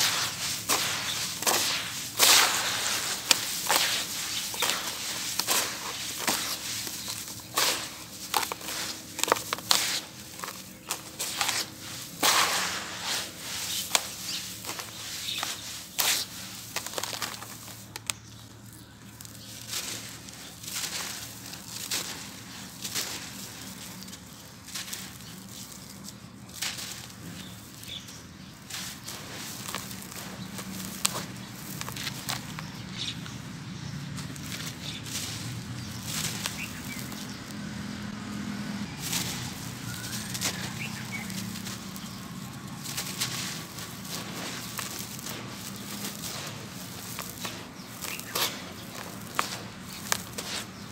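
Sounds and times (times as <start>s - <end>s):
powder and grit pouring: 0.0s - 18.0s, 39.0s - 50.9s
block crunching: 0.0s - 18.2s, 39.0s - 50.9s
gritty cement crumbling: 0.0s - 33.4s, 39.0s - 50.9s.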